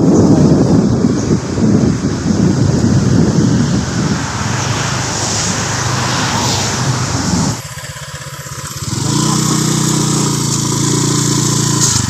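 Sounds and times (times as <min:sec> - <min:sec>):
wind noise on microphone: 0:00.0 - 0:12.0
motor scooter engine running: 0:05.6 - 0:12.0.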